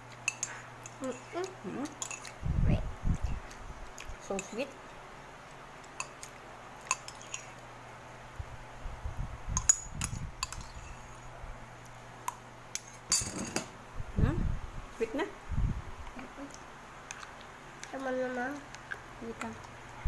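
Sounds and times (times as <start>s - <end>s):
spoon clinking on glass bowl: 0.3s - 2.3s, 6.8s - 7.5s, 9.6s - 11.1s
spoon scraping glass bowl: 0.3s - 2.4s, 6.8s - 7.6s, 10.0s - 11.2s.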